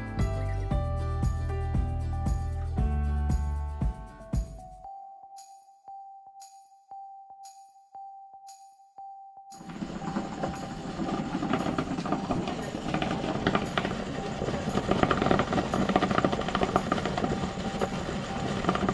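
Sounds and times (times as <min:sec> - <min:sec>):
crackling and sputtering: 0:09.6 - 0:18.9
steam rushing out: 0:09.7 - 0:18.9.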